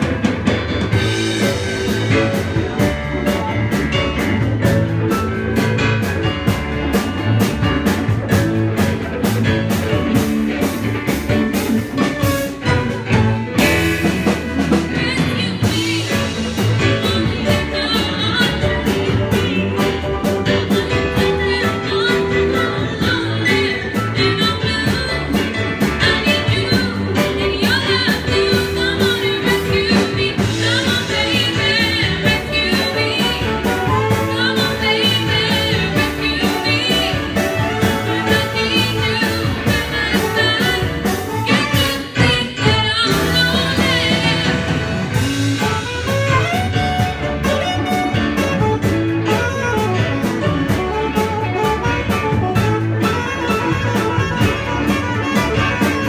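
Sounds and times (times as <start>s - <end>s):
drums keeping steady beat: 0.0s - 56.0s
electric guitar: 0.0s - 56.0s
saxophone horn section: 30.6s - 56.0s.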